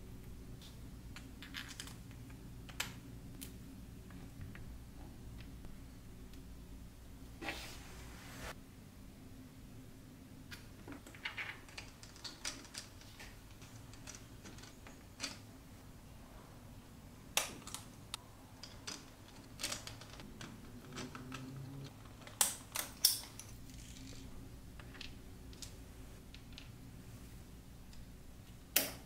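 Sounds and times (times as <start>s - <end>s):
plastic parts clicking and tapping: 10.5s - 15.4s.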